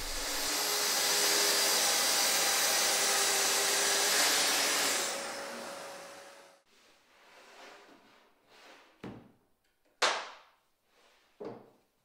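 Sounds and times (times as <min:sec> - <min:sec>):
circular saw cutting: 0:00.0 - 0:06.6.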